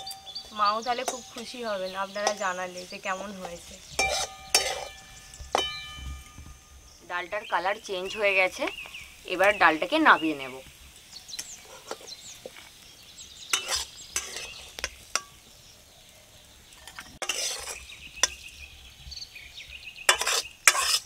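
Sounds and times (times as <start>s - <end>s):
metal spatula scraping metal pan: 0.0s - 6.9s, 11.4s - 12.6s, 13.5s - 15.4s, 16.8s - 18.4s, 20.1s - 21.0s.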